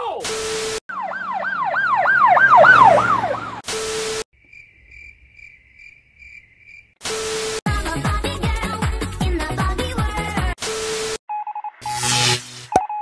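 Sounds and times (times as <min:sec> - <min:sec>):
siren-like wail: 0:00.9 - 0:03.6
crickets chirping: 0:04.4 - 0:07.0
tv static with beep: 0:11.8 - 0:13.0.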